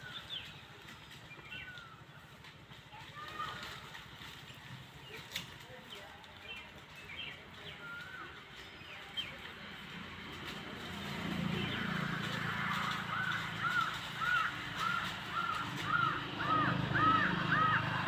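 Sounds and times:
bird calling: 0.0 - 2.3, 6.4 - 9.4, 12.6 - 18.0.

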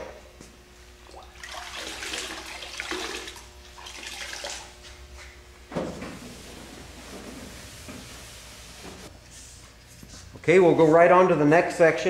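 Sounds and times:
water sloshing and dripping: 1.0 - 5.0.

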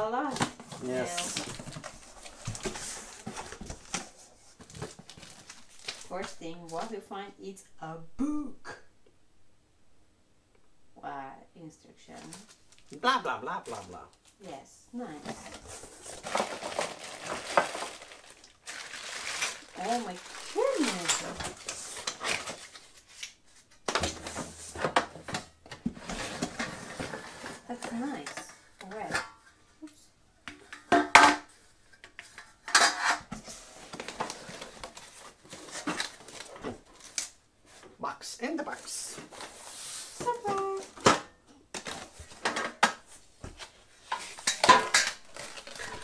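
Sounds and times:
cardboard box rustling: 15.0 - 22.9.

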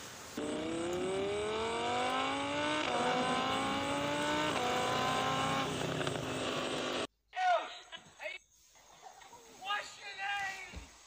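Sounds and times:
vehicle engine accelerating: 0.4 - 7.1.

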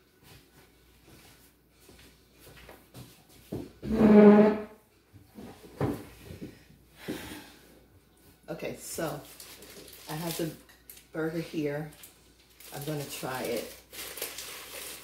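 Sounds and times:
chair knocking: 3.6 - 4.8
chair scraping across floor: 3.8 - 6.3.

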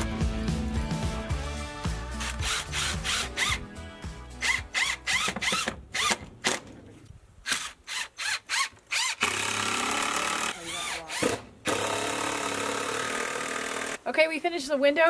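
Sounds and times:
cordless drill whining: 4.4 - 6.2, 7.5 - 14.0.

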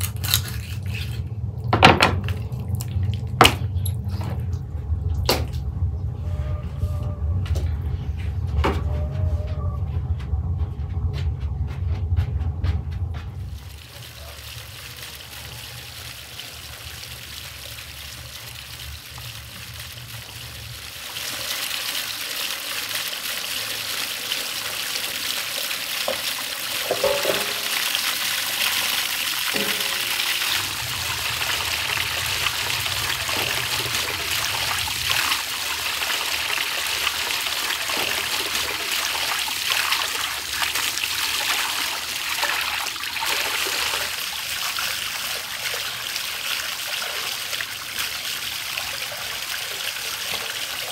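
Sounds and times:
fountain water splashing over stone: 13.5 - 50.9.

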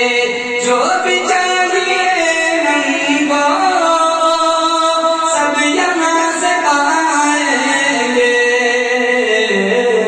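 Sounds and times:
man singing unaccompanied: 0.0 - 10.0.

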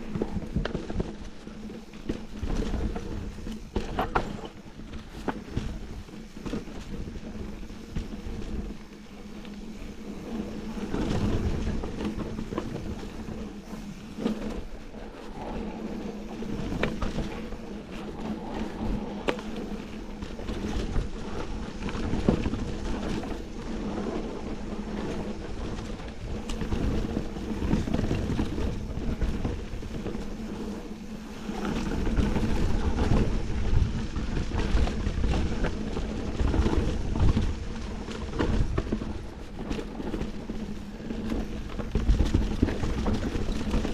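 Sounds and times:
bike rattling over bumps: 0.0 - 43.9
wind buffeting microphone: 0.0 - 43.9.

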